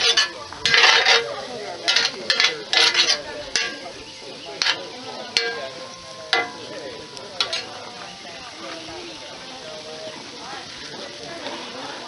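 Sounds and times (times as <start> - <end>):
metal spoon clinking on iron pot: 0.0 - 4.0, 4.6 - 6.8, 7.4 - 7.8
mushrooms sizzling: 0.0 - 12.0.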